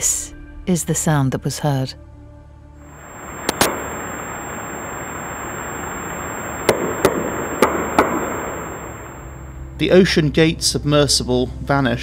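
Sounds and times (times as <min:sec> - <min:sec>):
steady hiss: 0:02.8 - 0:09.7.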